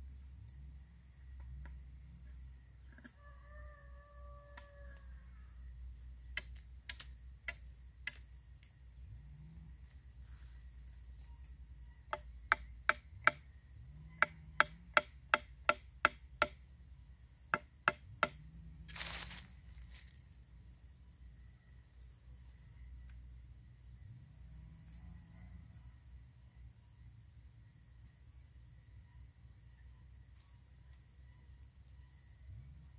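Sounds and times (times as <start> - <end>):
high insect drone: 0.0 - 32.9
machete chopping wood: 17.5 - 18.4.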